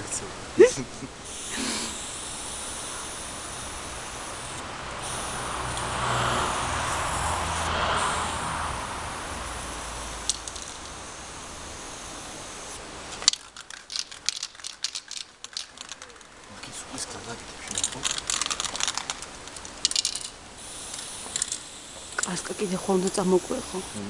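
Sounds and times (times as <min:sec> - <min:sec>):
spray-paint can hissing: 0:01.2 - 0:16.4, 0:17.7 - 0:24.0.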